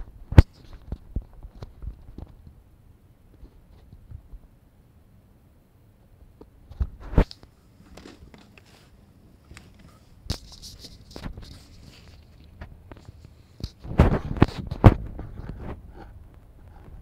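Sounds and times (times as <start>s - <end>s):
rustling: 6.7s - 17.0s.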